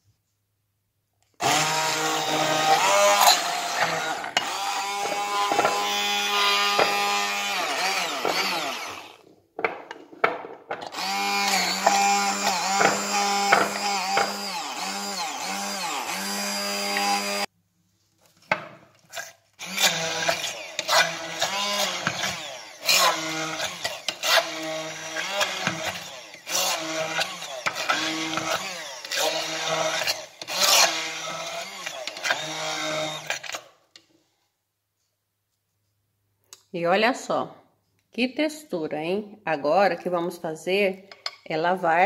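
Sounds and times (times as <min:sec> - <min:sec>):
stick blender motor whirring: 0:01.4 - 0:09.3, 0:10.8 - 0:17.5, 0:19.1 - 0:33.7
blender knocking in bowl: 0:06.6 - 0:07.1, 0:11.8 - 0:14.4.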